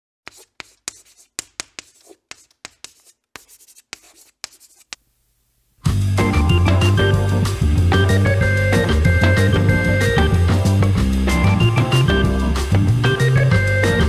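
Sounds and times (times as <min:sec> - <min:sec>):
pen scratching on paper: 0:00.3 - 0:05.0
music with guitar and drums: 0:05.8 - 0:14.0.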